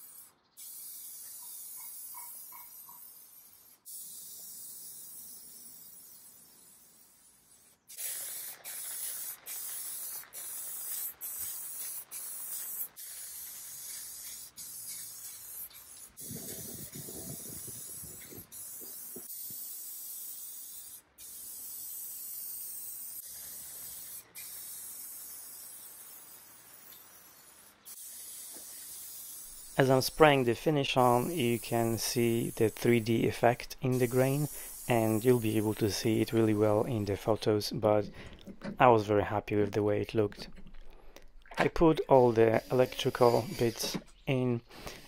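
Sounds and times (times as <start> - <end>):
aerosol spray can hissing: 0.0 - 37.1, 42.2 - 44.0, 44.8 - 45.0.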